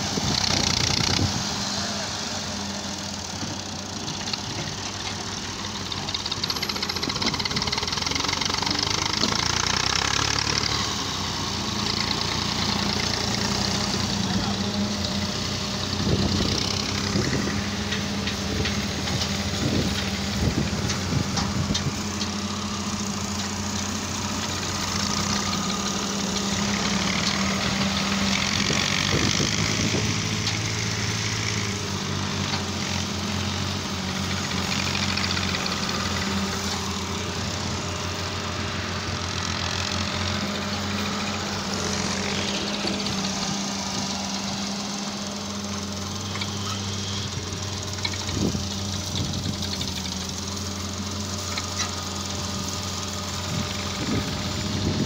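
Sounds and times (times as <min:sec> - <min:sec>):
diesel engines running: 0:00.0 - 0:55.0.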